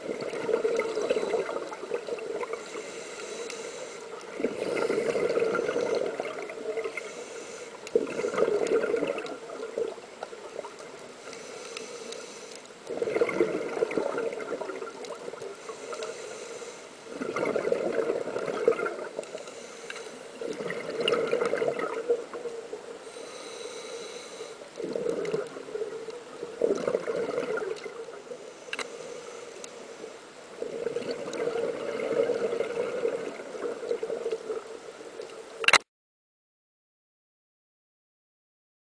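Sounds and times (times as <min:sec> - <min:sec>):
exhaled bubbles underwater: 0:00.0 - 0:02.7, 0:04.2 - 0:07.0, 0:07.9 - 0:11.0, 0:12.8 - 0:15.6, 0:17.1 - 0:19.2, 0:20.3 - 0:22.6, 0:24.8 - 0:28.2, 0:30.6 - 0:34.7
diver breathing through regulator: 0:02.4 - 0:06.1, 0:06.9 - 0:08.7, 0:11.2 - 0:12.7, 0:15.6 - 0:17.0, 0:19.2 - 0:20.3, 0:23.0 - 0:25.3.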